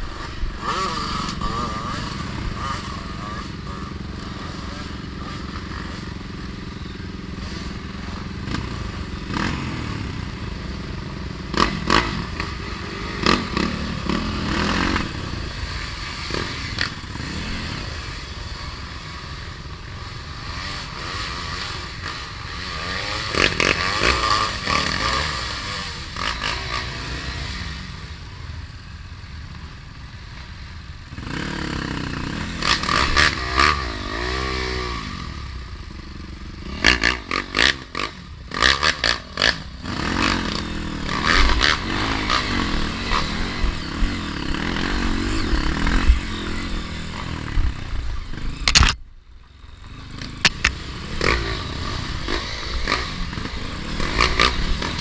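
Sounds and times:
dirt bike engine running: 0.0 - 55.0.

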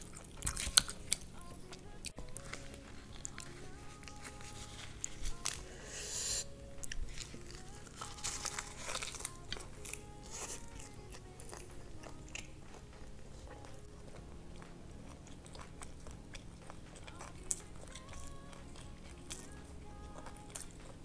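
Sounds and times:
crunching and chewing: 0.0 - 21.0
soft background music: 0.0 - 21.0
seaweed sheet crinkling: 6.9 - 11.7.

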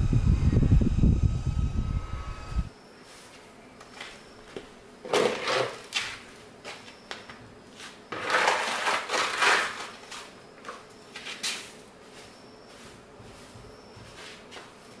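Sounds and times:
objects scraping and rustling: 5.0 - 7.0, 7.7 - 15.0.

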